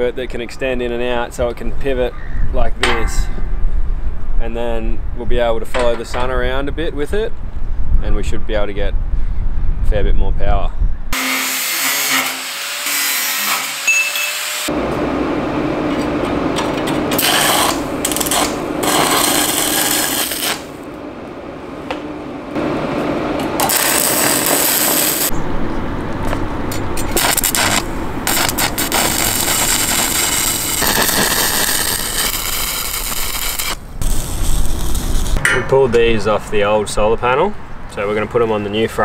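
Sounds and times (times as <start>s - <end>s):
angle grinder: 11.2s - 14.7s, 23.6s - 25.3s, 28.4s - 35.4s
arc welder crackling: 17.0s - 20.9s, 23.4s - 25.3s, 27.0s - 35.4s.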